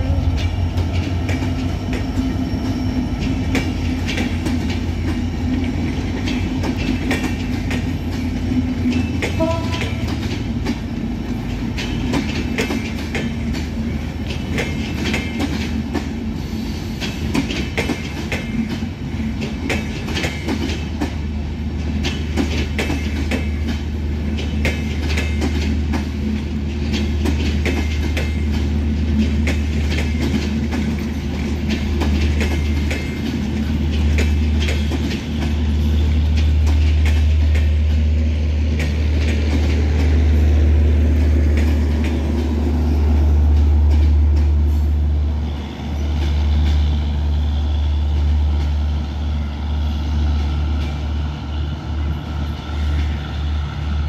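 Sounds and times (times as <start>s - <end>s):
train wheels clattering over rails: 0.0s - 49.2s.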